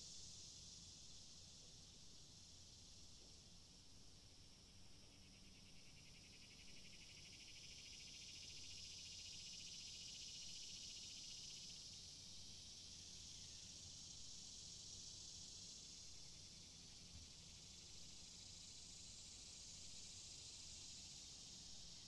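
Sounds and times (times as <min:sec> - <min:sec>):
high-pitched insect trilling: 0:04.5 - 0:22.0.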